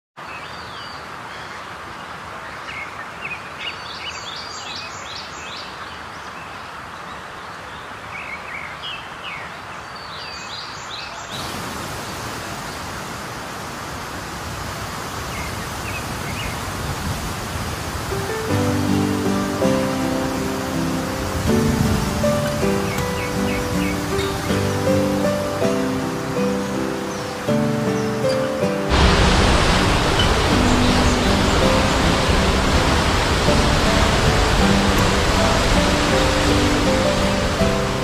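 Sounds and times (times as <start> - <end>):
falling water rushing: 11.2 - 38.0
birds chirping: 15.2 - 38.0.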